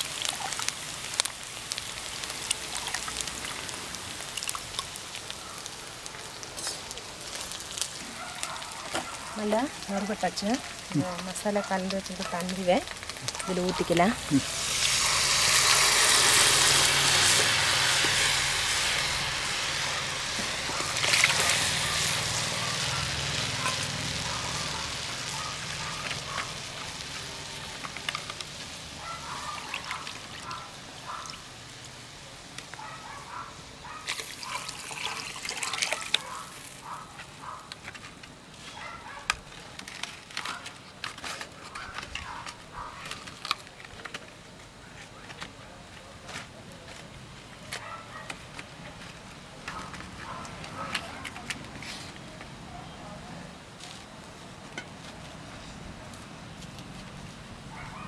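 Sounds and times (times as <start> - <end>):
curry simmering: 0.0 - 32.8
faint crackles: 0.0 - 52.8
liquid hissing in hot pan: 12.9 - 25.7.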